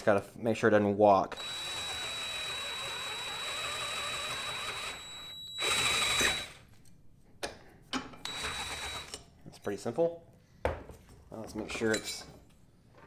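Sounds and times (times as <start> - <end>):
cordless drill whining: 1.3 - 6.7, 8.2 - 9.2.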